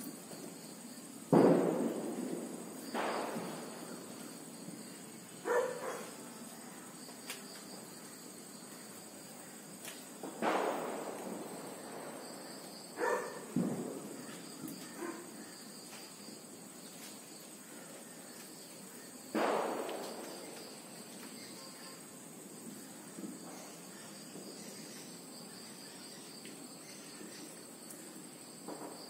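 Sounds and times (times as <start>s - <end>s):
high insect drone: 0.0s - 29.0s
sharp bangs: 1.3s - 4.8s, 10.2s - 14.7s, 19.3s - 21.5s.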